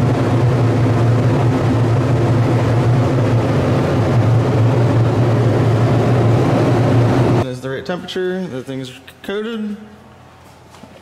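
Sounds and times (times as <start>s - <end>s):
extraction fan humming: 0.0s - 11.0s.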